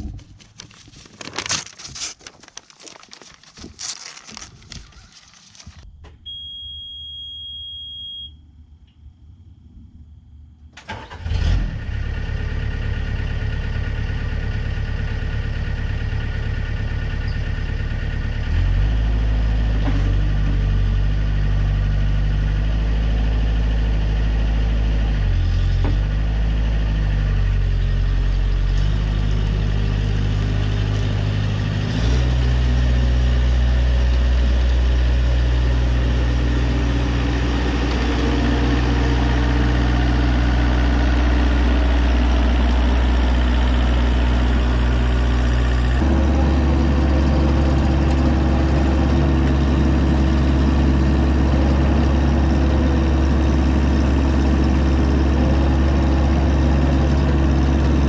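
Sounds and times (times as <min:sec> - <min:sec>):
steady high beep: 0:06.3 - 0:08.4
mini excavator engine: 0:10.8 - 0:58.0.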